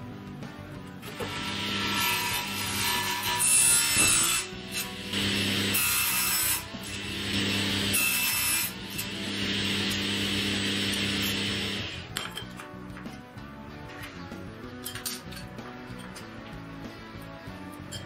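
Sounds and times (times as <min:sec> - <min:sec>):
table saw cutting metal: 0:01.0 - 0:12.1
steady motor hum: 0:05.1 - 0:05.9, 0:06.8 - 0:12.1.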